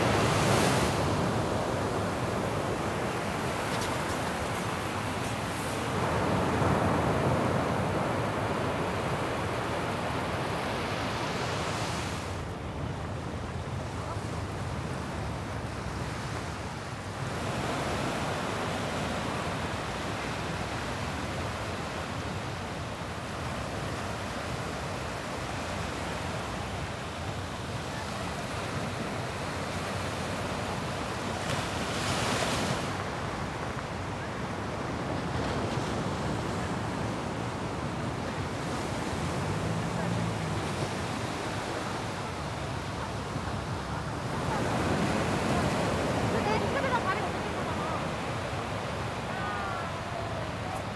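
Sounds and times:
waves washing on beach: 0.0 - 50.9.

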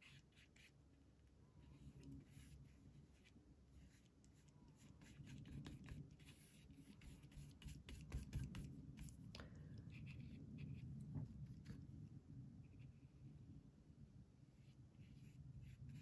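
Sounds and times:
paintbrush brushing on paper: 0.0 - 0.8, 1.6 - 9.3, 9.9 - 11.8, 14.4 - 16.0.

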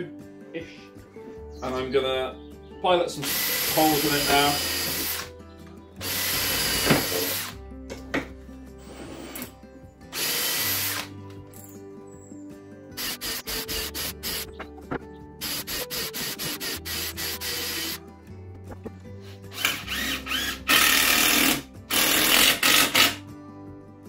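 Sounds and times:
cordless drill boring into wood: 3.2 - 5.3, 6.0 - 7.6, 10.1 - 11.1, 13.0 - 14.4, 15.4 - 18.0, 19.5 - 23.2.

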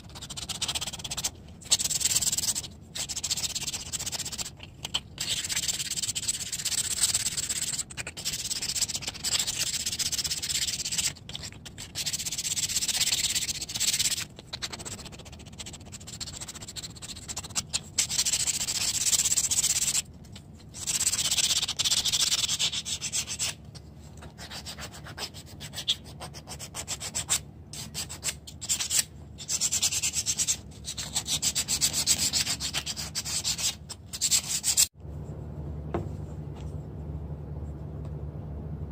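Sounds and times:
sandpaper rubbing on wood: 5.2 - 11.2, 11.8 - 20.0, 20.8 - 23.6, 24.4 - 34.9.

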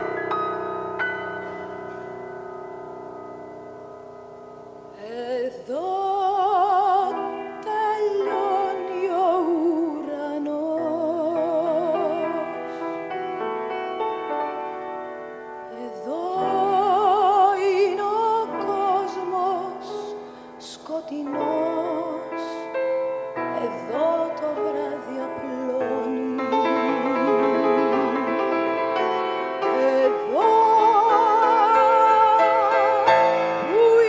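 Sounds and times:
piano and band accompaniment: 0.0 - 3.7, 21.1 - 34.0
woman singing operatically: 5.0 - 12.7, 15.7 - 22.8, 23.4 - 28.7, 29.6 - 34.0.

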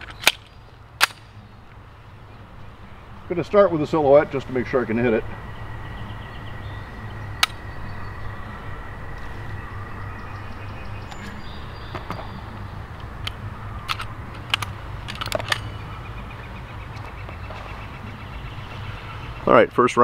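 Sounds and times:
pistol metallic clicks: 0.0 - 1.8, 7.4 - 7.6, 13.0 - 15.8.

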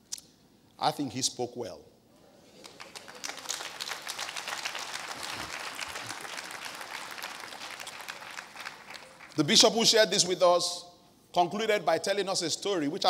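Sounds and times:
congregation applauding: 2.6 - 9.7.

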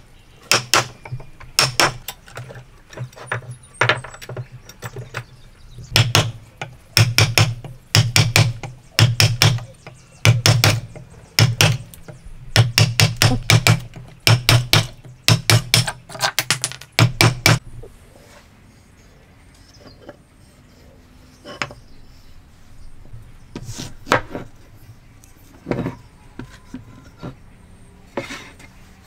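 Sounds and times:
mallet striking chisel into wood: 0.5 - 2.0, 5.9 - 11.8, 12.5 - 17.6.

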